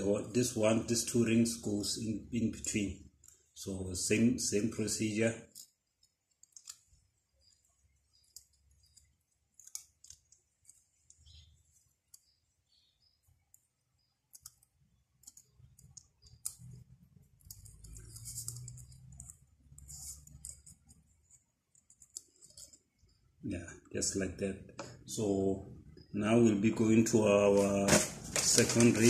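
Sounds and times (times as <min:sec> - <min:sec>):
piston ring clicking and scraping: 0:13.0 - 0:23.2.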